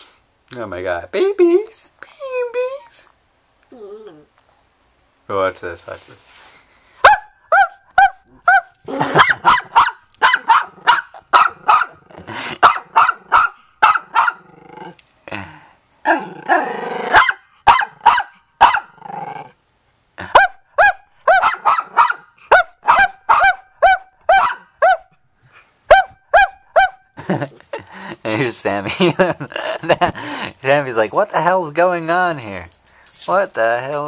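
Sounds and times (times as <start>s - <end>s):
puppy yapping: 7.0s - 12.0s, 12.6s - 15.0s, 16.1s - 19.5s, 20.3s - 25.1s, 25.9s - 27.0s
drawn-out dog bark: 7.0s - 14.5s, 16.6s - 19.0s, 20.3s - 25.1s, 25.9s - 27.1s.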